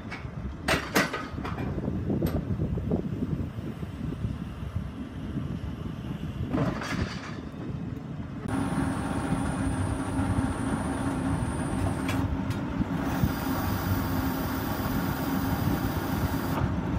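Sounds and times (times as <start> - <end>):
tractor engine idling: 8.5 - 16.9.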